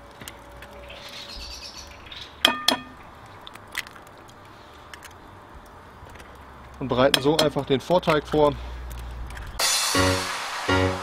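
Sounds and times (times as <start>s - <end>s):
bird chirping: 0.7s - 2.4s.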